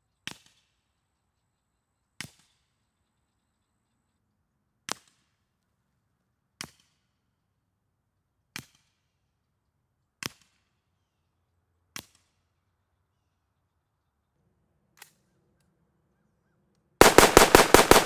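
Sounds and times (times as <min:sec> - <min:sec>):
suppressed rifle shots: 0:17.0 - 0:18.0.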